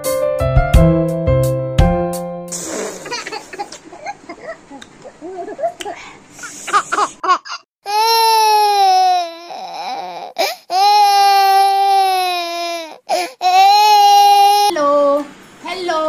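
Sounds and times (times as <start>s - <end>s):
baby wailing: 7.4s - 14.7s.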